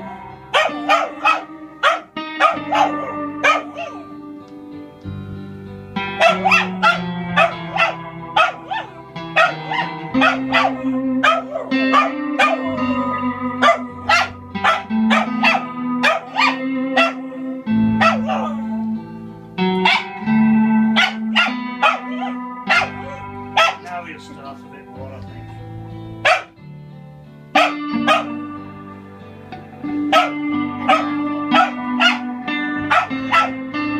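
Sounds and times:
small dog barking and yipping: 0.0 - 4.1, 6.2 - 17.2, 18.0 - 18.6, 19.8 - 20.2, 21.0 - 23.8, 26.2 - 26.5, 27.6 - 28.4, 30.1 - 33.6
electric guitar chords: 0.0 - 33.9.

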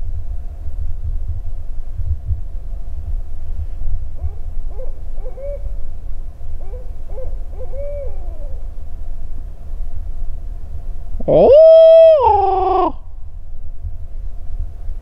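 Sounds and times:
wind rumbling on microphone: 0.0 - 15.0
owl hooting: 4.2 - 5.9, 6.5 - 8.8, 11.2 - 13.0.

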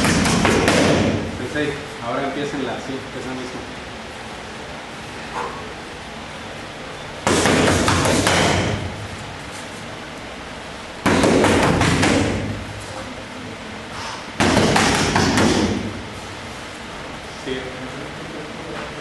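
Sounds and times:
punches hitting focus mitts: 0.0 - 1.3, 7.2 - 9.0, 11.0 - 12.8, 14.4 - 16.0.

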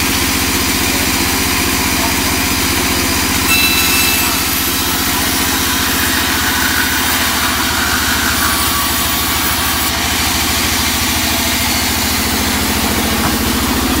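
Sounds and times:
band saw cutting wood: 0.4 - 14.0.

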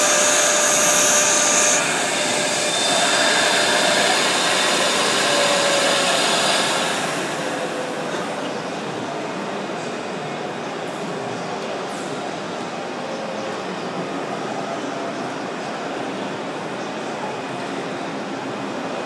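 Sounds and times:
high whine of cutting head: 0.0 - 8.0
cutting machine rushing noise: 0.0 - 8.3.

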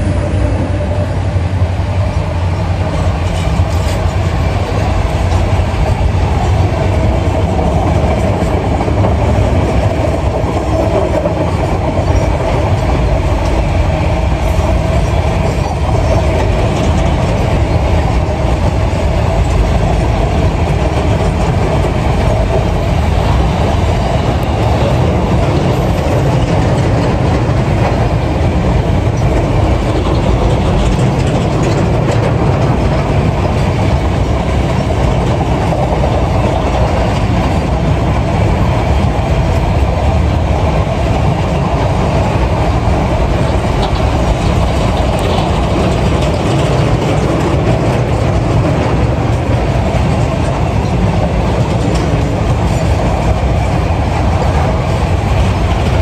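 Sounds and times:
freight train wheels on rails: 0.0 - 56.0
wheels clicking over track joints: 24.3 - 37.9, 41.6 - 56.0.

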